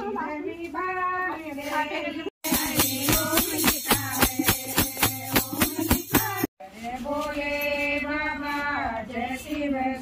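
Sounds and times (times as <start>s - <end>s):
women singing: 0.0s - 10.0s
drum beats: 2.4s - 6.5s
rhythmic hand-clapping: 2.4s - 6.5s.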